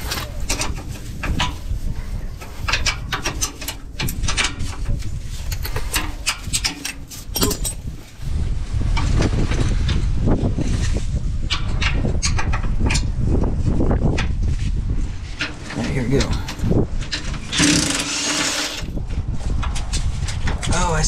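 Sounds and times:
socket ratchet clicking: 0:17.6 - 0:18.8.

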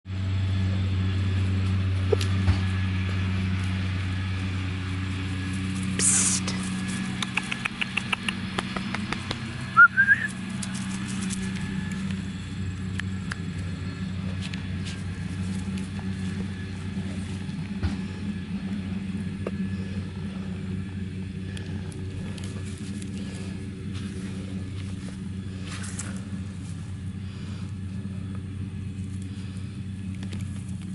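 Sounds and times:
low mechanical hum: 0:00.1 - 0:30.9
short hiss: 0:06.0 - 0:06.6.

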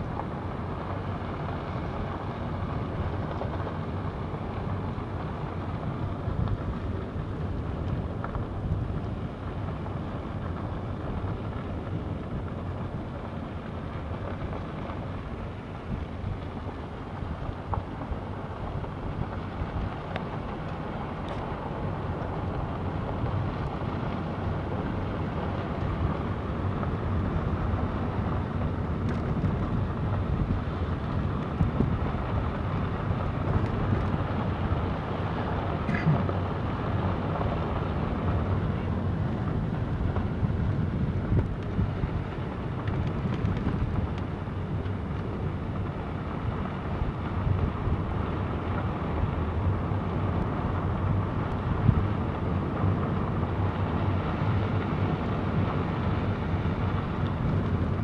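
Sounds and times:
vehicle engine: 0:13.9 - 0:58.0.

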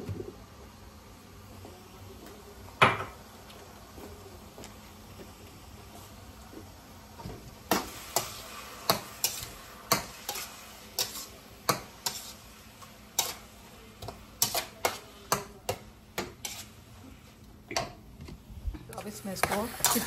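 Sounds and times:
low sizzle: 0:00.0 - 0:20.0
spatula scraping frying pan: 0:07.7 - 0:13.6, 0:14.4 - 0:15.2, 0:16.2 - 0:17.0, 0:19.4 - 0:20.0.

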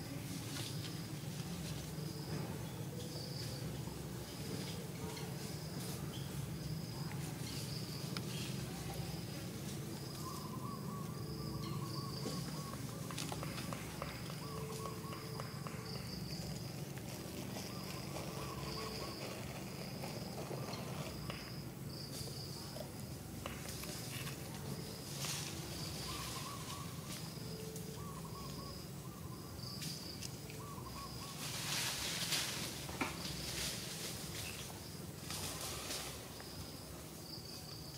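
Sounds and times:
lower wavering calls: 0:10.0 - 0:16.6, 0:25.4 - 0:32.6.

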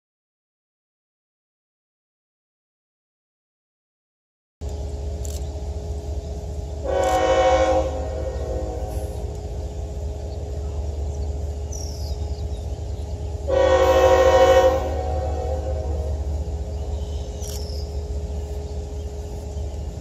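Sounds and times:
low train rumble: 0:04.6 - 0:20.0
train air horn blasts: 0:06.8 - 0:09.4, 0:13.4 - 0:16.4.

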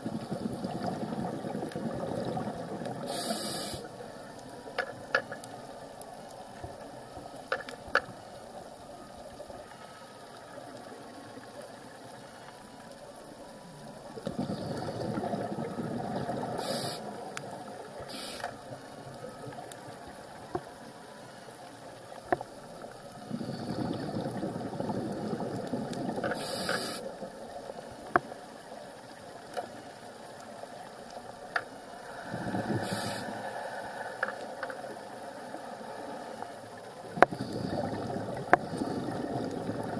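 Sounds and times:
exhaled bubbles underwater: 0:00.0 - 0:04.4, 0:14.1 - 0:18.0, 0:23.0 - 0:27.4, 0:32.1 - 0:33.4, 0:37.0 - 0:39.9
regulator hissing: 0:03.0 - 0:03.9.

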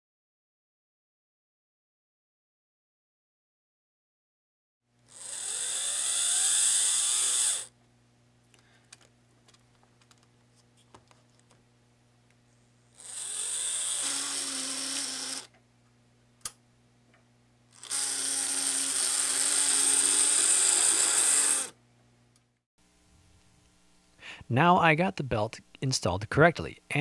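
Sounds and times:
toy train motor whining: 0:05.1 - 0:07.7, 0:13.0 - 0:15.5, 0:17.7 - 0:21.8.

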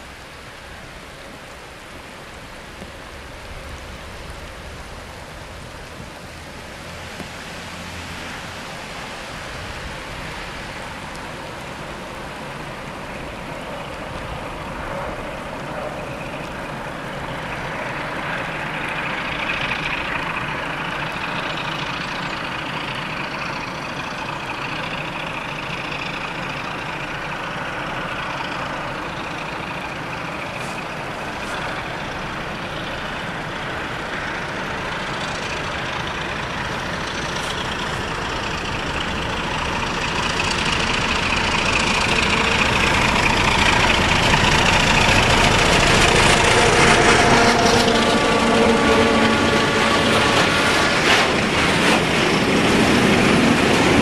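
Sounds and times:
diesel locomotive engine under load: 0:00.0 - 0:54.0.

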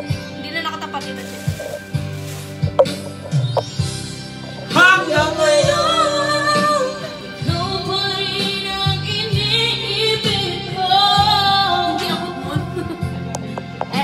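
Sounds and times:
music backing track: 0:00.0 - 0:14.0
woman singing into microphone: 0:04.6 - 0:14.0.

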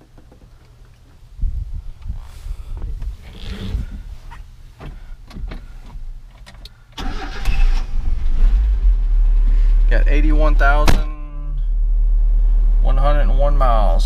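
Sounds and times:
engine starter cranking: 0:07.0 - 0:08.2.

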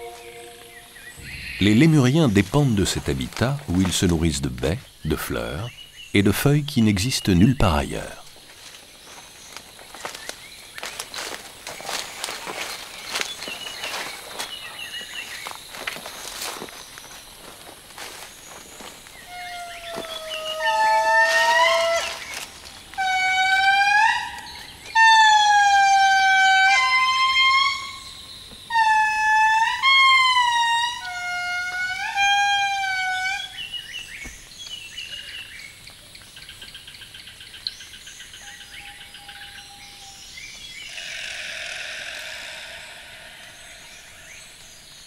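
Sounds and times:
indri wailing song: 0:00.0 - 0:02.4.

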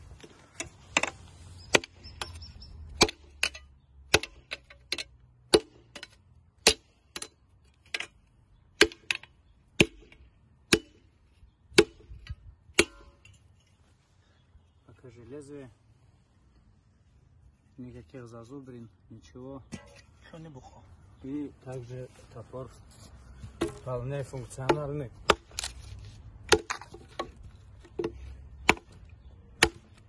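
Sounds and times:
axe chopping into log: 0:01.0 - 0:02.0, 0:03.0 - 0:04.5, 0:05.5 - 0:06.9, 0:09.8 - 0:11.0, 0:23.6 - 0:23.9, 0:24.6 - 0:25.7, 0:26.5 - 0:29.0, 0:29.6 - 0:30.0.

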